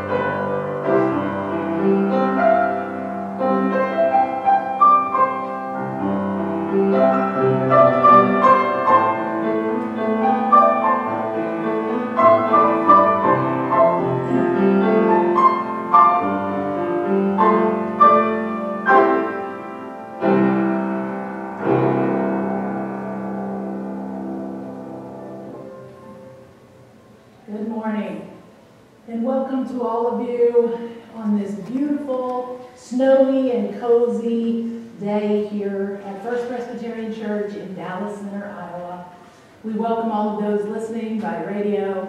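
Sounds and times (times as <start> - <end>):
solo upright piano: 0.0 - 27.5.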